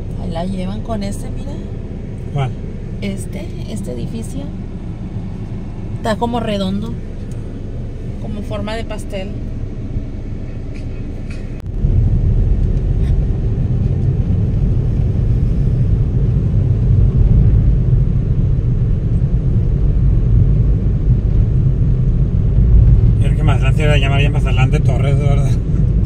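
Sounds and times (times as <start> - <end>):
car engine and tyres rumbling: 0.0 - 26.0.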